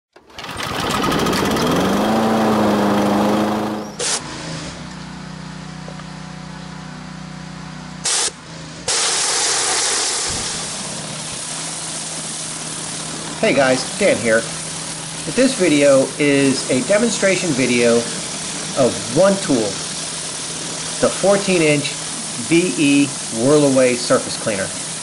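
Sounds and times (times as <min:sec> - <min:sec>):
engine-like sound winding up: 0:00.1 - 0:04.8
pressure washer engine hum: 0:00.1 - 0:25.0
water jets hissing on concrete: 0:08.9 - 0:25.0.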